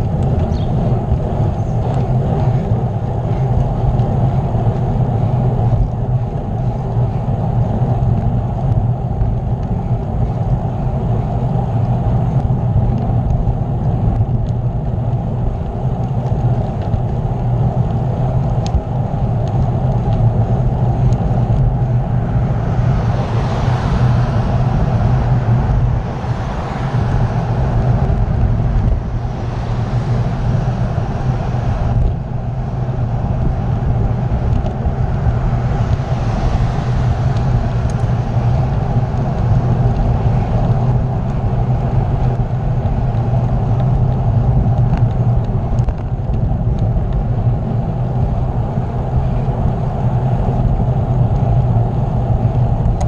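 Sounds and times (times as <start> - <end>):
wind rumble on microphone: 0.0 - 53.0.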